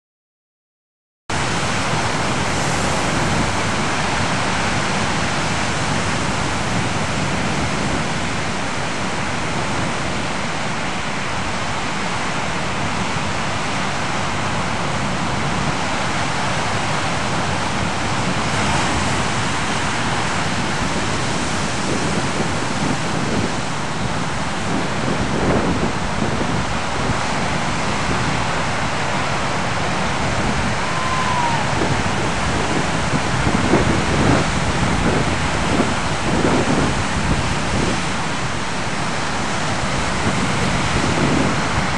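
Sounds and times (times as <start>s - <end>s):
ocean surf breaking on beach: 1.3s - 41.9s.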